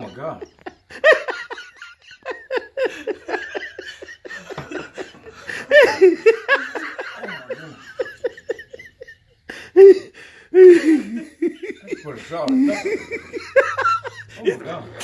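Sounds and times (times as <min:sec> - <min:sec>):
person laughing: 0:00.0 - 0:14.4
catches of breath: 0:09.5 - 0:11.0.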